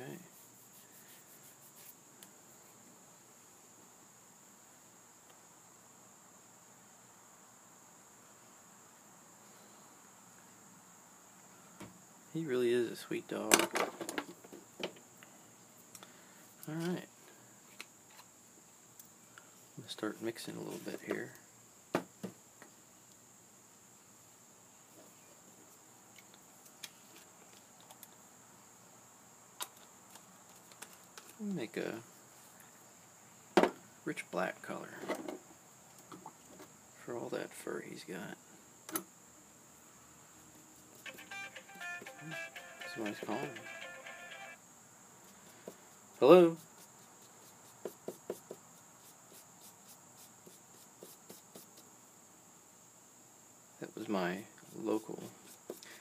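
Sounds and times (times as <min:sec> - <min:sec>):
faint high-pitched whine: 0:00.0 - 0:56.0
paintbrush scrubbing on paper: 0:00.2 - 0:02.8, 0:45.3 - 0:51.9, 0:54.6 - 0:56.0
brush clicking and tapping: 0:46.6 - 0:48.6.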